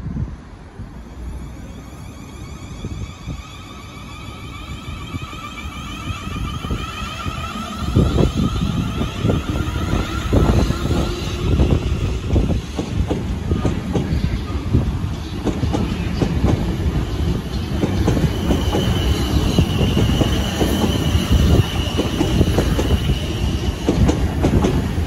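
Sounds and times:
electric train whine: 0.3 - 25.0
train wheel clatter: 4.4 - 25.0.

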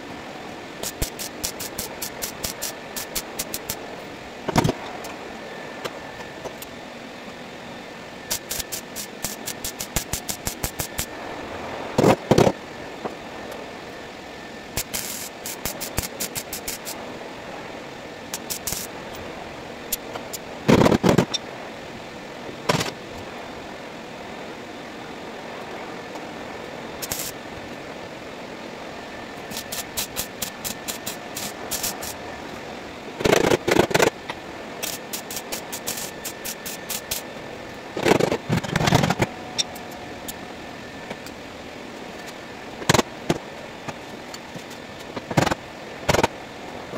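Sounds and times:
welder crackling: 0.7 - 3.8, 8.2 - 11.1, 14.6 - 17.0, 18.3 - 19.2, 27.0 - 27.4, 29.3 - 32.2, 33.2 - 37.3.

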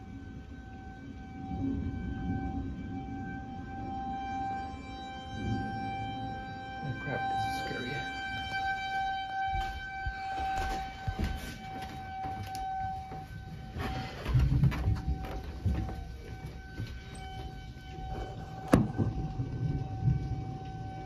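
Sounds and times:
warning siren steady tone: 0.0 - 21.0
low rumbling noise: 12.6 - 21.0.

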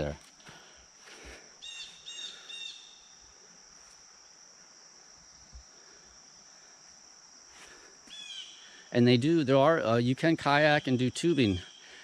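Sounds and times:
insects droning: 0.0 - 12.0
bird chirps: 1.6 - 3.3, 8.1 - 8.8, 10.7 - 12.0.

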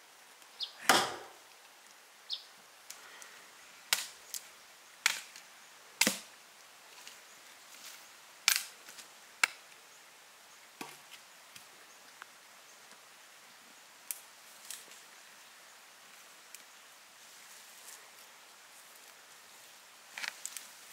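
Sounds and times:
chopping knocks: 0.8 - 1.4.

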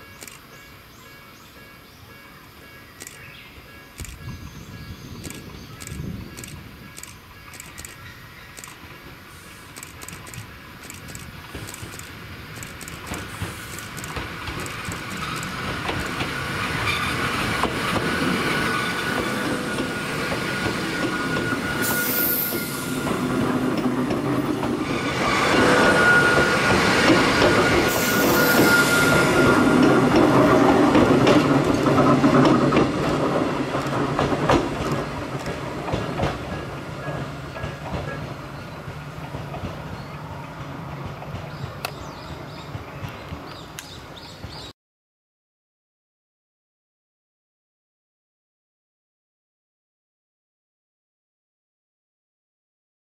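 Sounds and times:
train wheels on rails: 0.0 - 44.7
high wheel squeal: 14.7 - 23.7, 24.8 - 31.0.

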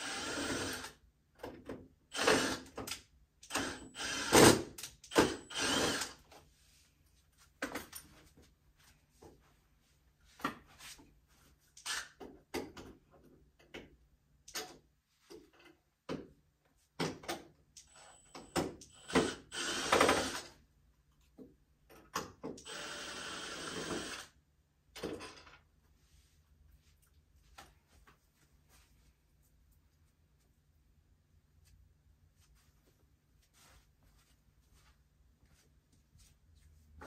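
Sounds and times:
power drill running: 0.0 - 1.0, 2.1 - 2.8, 3.4 - 6.2, 17.8 - 20.6, 22.6 - 24.4.

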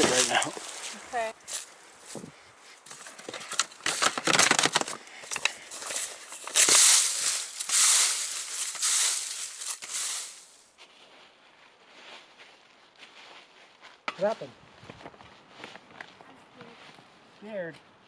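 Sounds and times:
dry leaves crunching: 0.0 - 14.4.

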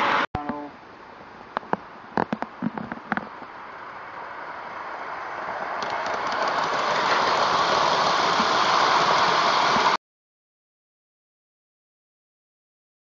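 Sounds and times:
model train running on rails: 3.5 - 10.0.

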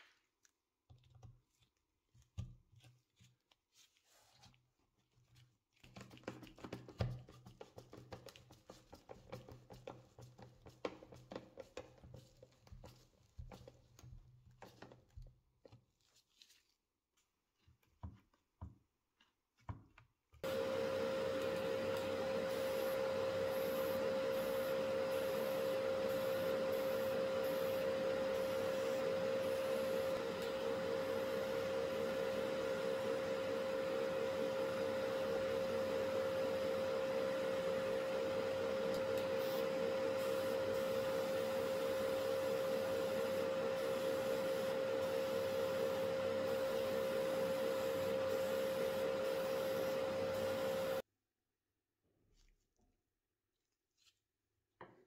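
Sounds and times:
powder coating equipment whirring: 20.4 - 51.0.

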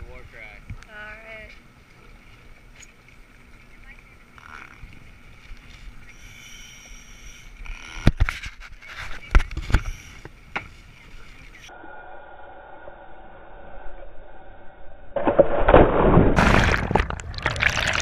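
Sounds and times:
water sloshing: 15.2 - 18.0.

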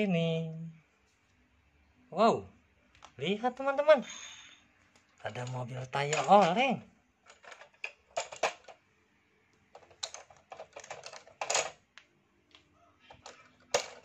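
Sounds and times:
plastic toy clicks and knocks: 5.2 - 8.8, 9.7 - 11.8, 13.1 - 14.0.

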